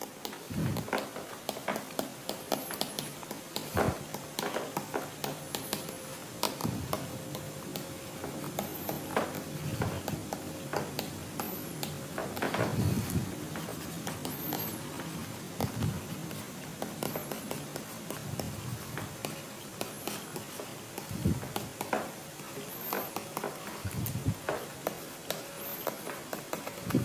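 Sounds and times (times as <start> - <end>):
pen scratching on paper: 2.3 - 27.0.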